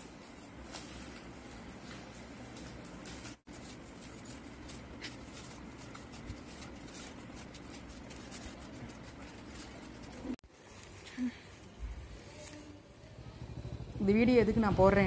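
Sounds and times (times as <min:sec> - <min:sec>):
paper and bag rustling: 0:00.0 - 0:11.4.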